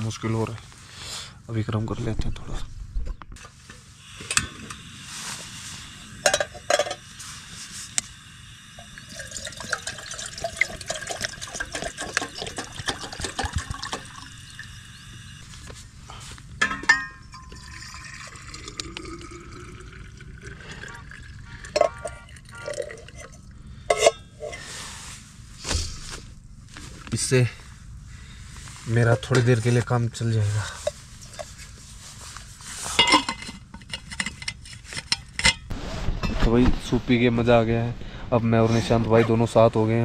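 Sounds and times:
water pouring into pot: 8.6s - 15.5s, 17.3s - 23.4s
pot and bottle knocking: 9.5s - 14.2s.

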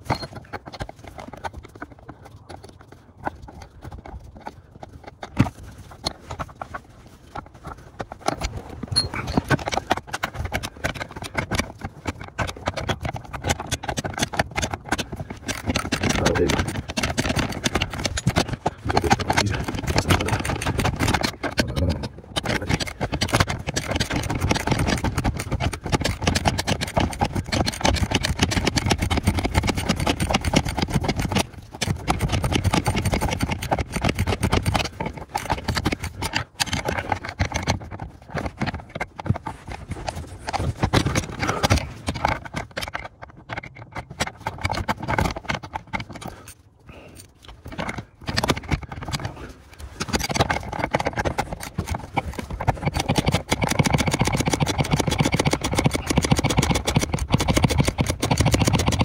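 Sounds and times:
tools and parts clicking and rattling: 0.0s - 59.0s.

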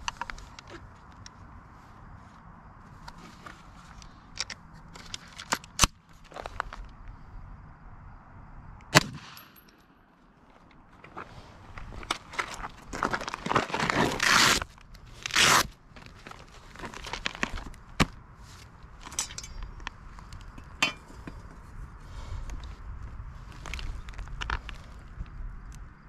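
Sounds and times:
hook-and-loop strap ripping: 13.3s - 18.2s.

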